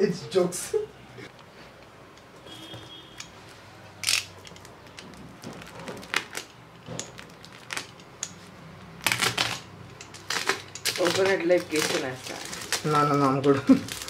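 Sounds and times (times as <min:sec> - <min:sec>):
shrink wrap crackling: 0:03.9 - 0:14.0.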